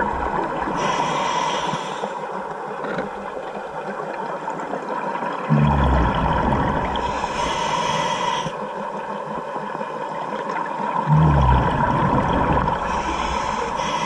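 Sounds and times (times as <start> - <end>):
regulator inhaling hiss: 0.8 - 2.2, 7.0 - 8.6, 12.8 - 14.0
regulator exhaled bubbles rushing: 5.5 - 7.3, 11.1 - 13.8.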